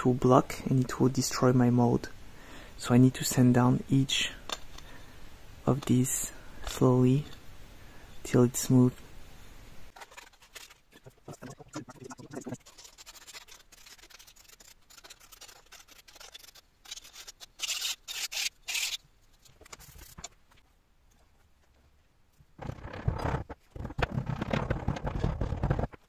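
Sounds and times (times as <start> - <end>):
file scraping plastic gear: 10.0 - 19.0, 22.6 - 26.0.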